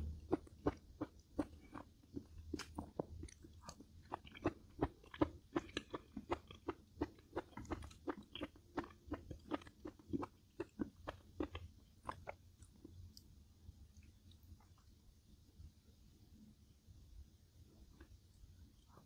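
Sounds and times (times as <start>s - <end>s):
person chewing with wet crunches: 0.0s - 15.0s.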